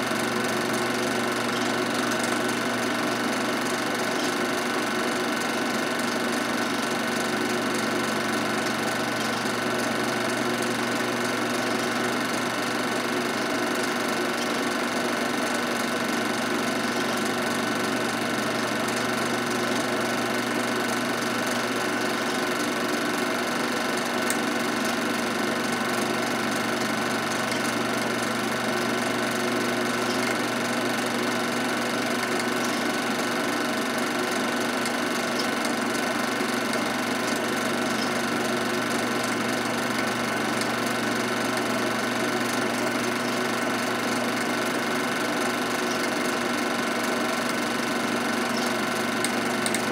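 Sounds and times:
film projector running: 0:00.0 - 0:49.9.

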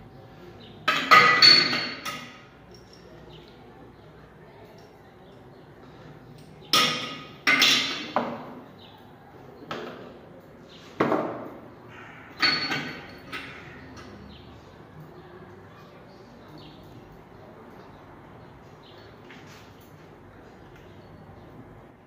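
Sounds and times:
metal parts knocking on ceramic basin: 0:12.4 - 0:14.0.

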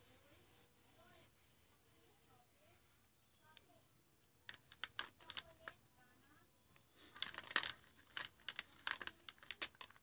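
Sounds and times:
crayons clicking in a box: 0:04.4 - 0:05.9, 0:06.7 - 0:10.0.

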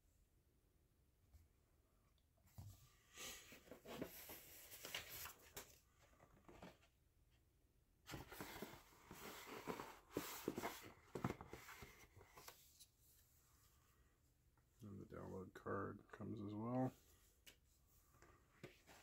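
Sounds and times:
cardboard and paper rustling: 0:02.5 - 0:07.0, 0:08.1 - 0:13.3.

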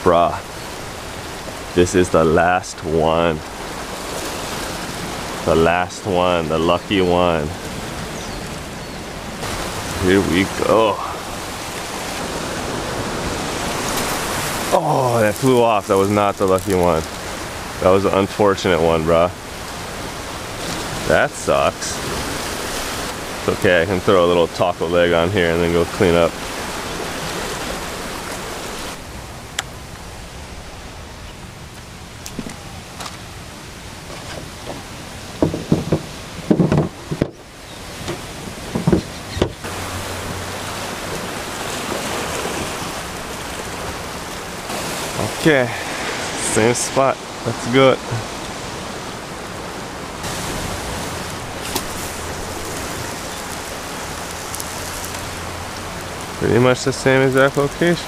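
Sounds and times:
surf washing against rocks: 0:00.0 - 0:58.0
light knocks: 0:35.4 - 0:37.4.

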